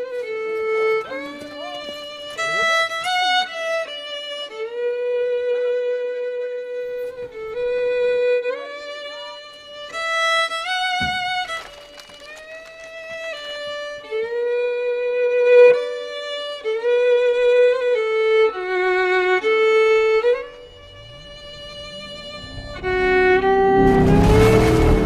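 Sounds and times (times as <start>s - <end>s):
violin playing slow melody: 0.0s - 25.0s
low rumble and rush of noise: 19.4s - 25.0s.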